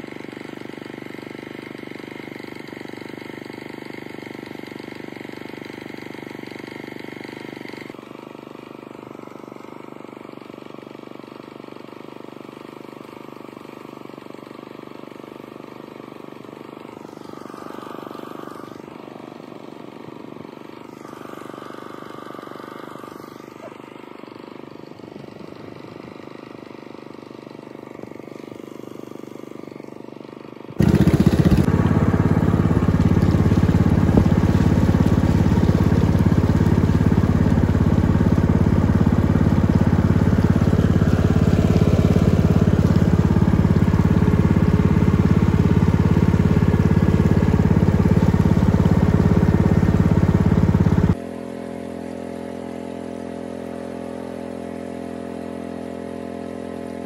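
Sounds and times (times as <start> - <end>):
boat engine running: 16.5 - 26.6, 30.8 - 57.0.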